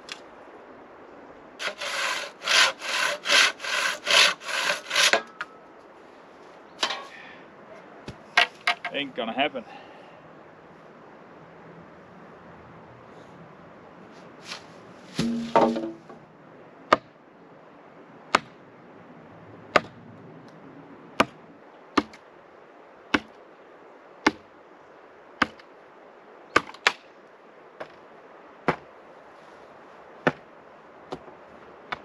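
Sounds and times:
post being pounded into ground: 0:15.1 - 0:16.2, 0:19.7 - 0:20.0, 0:23.1 - 0:23.3, 0:26.6 - 0:27.0, 0:28.6 - 0:28.9, 0:30.2 - 0:30.4.

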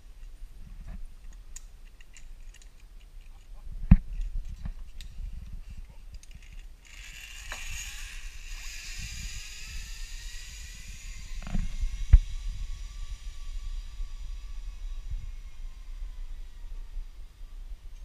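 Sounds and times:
zipline pulleys whining on cable: 0:06.4 - 0:18.0.

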